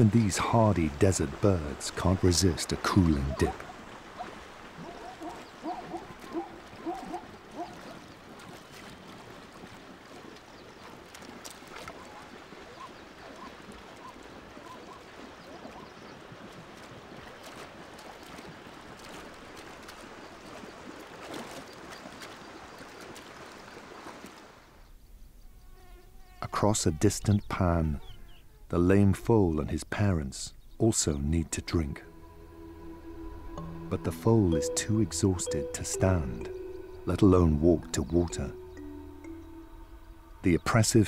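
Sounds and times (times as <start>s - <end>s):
water splashing and sloshing: 0.0s - 25.0s, 28.9s - 41.0s.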